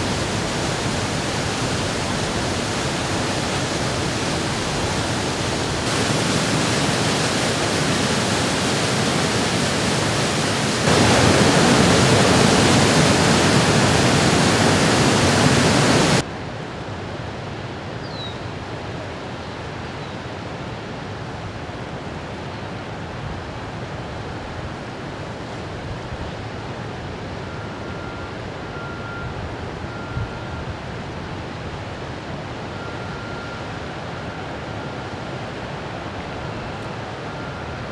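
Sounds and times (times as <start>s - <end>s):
water rushing from outlet pipe: 0.0s - 16.2s.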